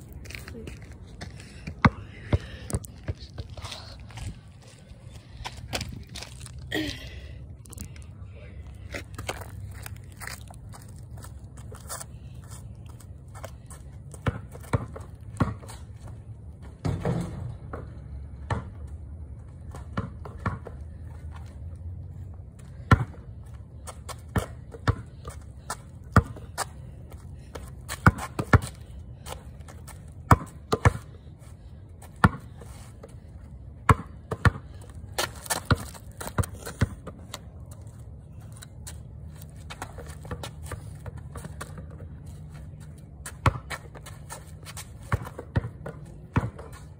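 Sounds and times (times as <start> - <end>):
basketball bouncing on concrete: 1.6 - 3.2, 13.4 - 19.0, 19.7 - 21.0, 22.6 - 31.3, 32.0 - 33.2, 33.8 - 37.8, 39.6 - 42.2, 42.8 - 46.9.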